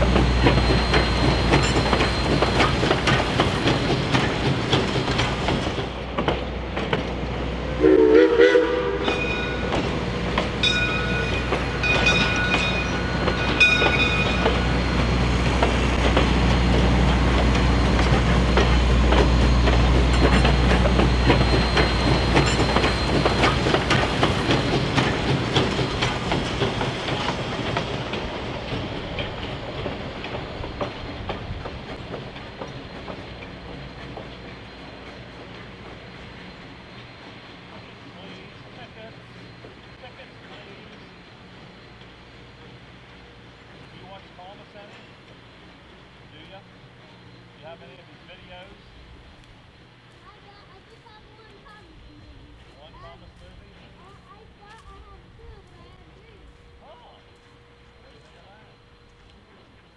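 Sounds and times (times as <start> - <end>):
rail clatter: 0.0 - 59.9
steam locomotive chuffing: 0.0 - 59.9
train whistle blast: 7.7 - 9.7.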